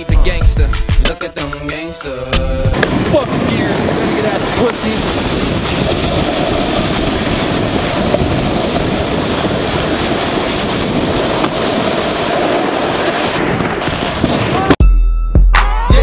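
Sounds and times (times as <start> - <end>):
wind over microphone: 2.4 - 14.8
snowboards sliding on snow: 2.6 - 14.8.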